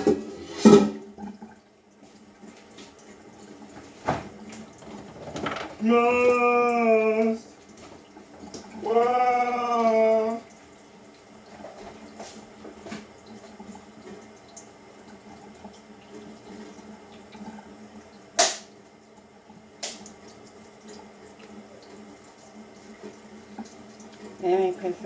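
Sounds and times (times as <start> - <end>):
water running into sink: 0.0 - 25.0.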